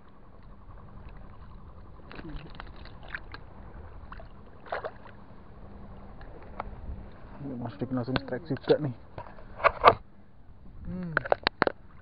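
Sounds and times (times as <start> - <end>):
sea water sloshing and lapping: 0.0 - 10.0
faint steady hum: 0.0 - 12.0.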